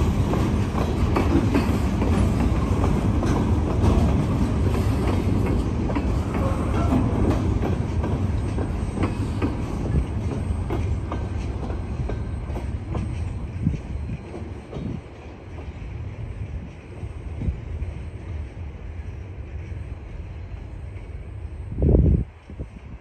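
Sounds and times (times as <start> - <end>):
wheels clicking over rail joints: 0.0 - 15.9.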